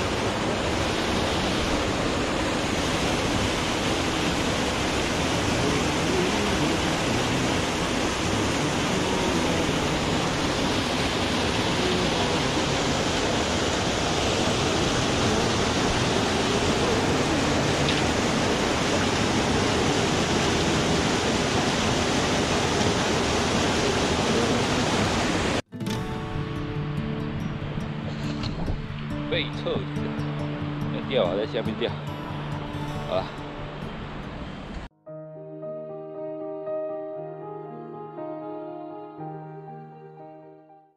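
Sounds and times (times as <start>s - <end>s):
water pouring from culvert: 0.0s - 25.6s.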